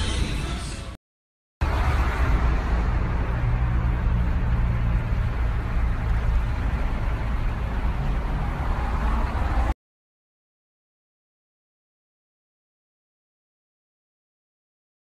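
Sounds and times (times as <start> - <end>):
street traffic rumble: 0.0 - 1.0, 1.6 - 9.8.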